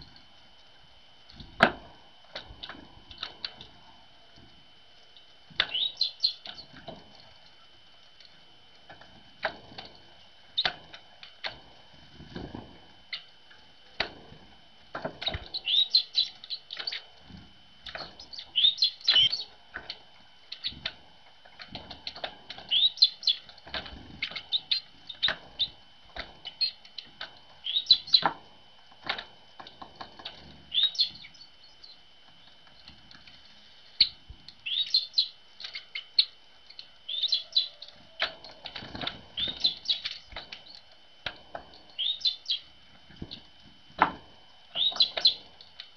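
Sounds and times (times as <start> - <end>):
birds tapping at feeder: 1.3 - 7.6, 8.2 - 33.4, 34.0 - 45.9
high bird chirping calls: 5.7 - 6.7, 15.5 - 17.0, 18.1 - 19.5, 22.7 - 23.5, 27.6 - 28.3, 30.7 - 32.5, 34.0 - 37.9, 39.4 - 40.8, 42.0 - 42.7, 44.7 - 45.4.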